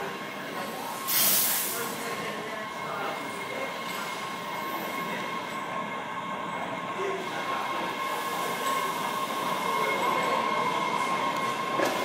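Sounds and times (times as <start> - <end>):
subway train rumble: 0.0 - 12.0.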